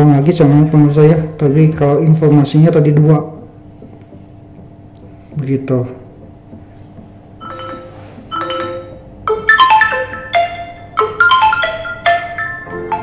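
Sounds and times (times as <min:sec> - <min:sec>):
marimba-like ringtone melody: 0:06.6 - 0:13.0.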